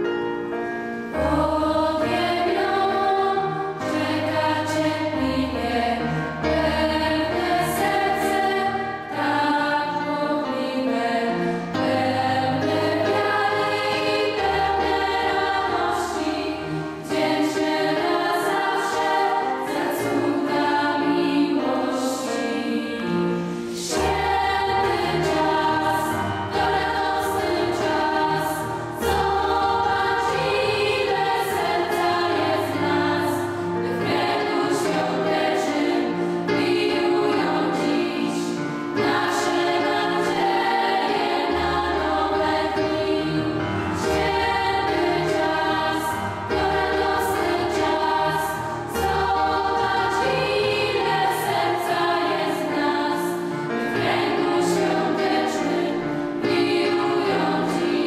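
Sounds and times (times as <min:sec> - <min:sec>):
girls' choir singing in harmony: 0:00.0 - 0:58.0.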